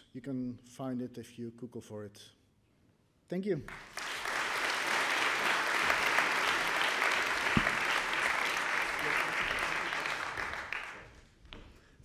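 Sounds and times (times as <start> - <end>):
audience applauding: 3.7 - 11.2.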